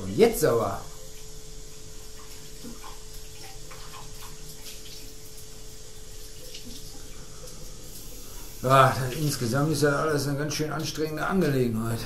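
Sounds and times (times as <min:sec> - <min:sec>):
tap water running into sink: 0:02.0 - 0:09.7.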